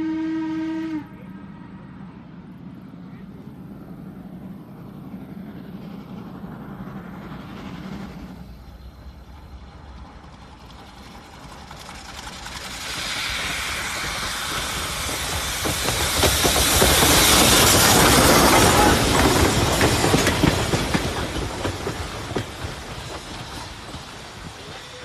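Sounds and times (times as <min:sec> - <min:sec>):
steam locomotive rumble: 0:00.0 - 0:25.0
loud steam hiss: 0:06.6 - 0:25.0.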